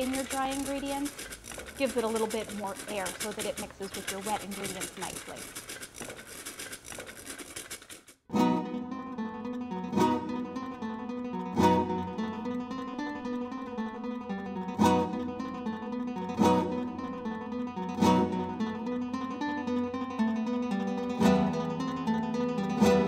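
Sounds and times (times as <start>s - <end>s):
strummed acoustic guitar: 8.3s - 23.0s.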